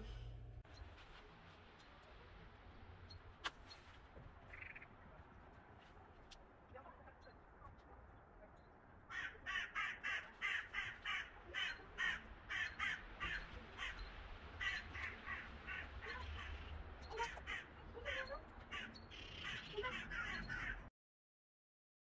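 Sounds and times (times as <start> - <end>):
birds making harsh calls: 9.0 - 20.9.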